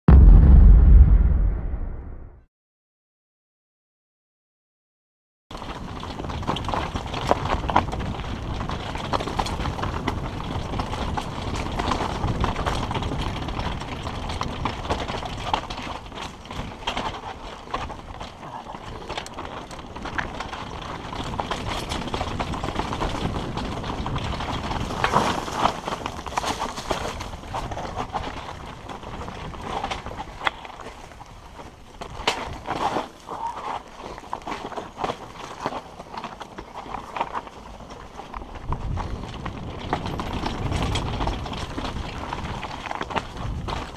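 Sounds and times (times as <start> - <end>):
low rumble: 0.1 - 2.5
bike rattling over stones: 5.5 - 43.9.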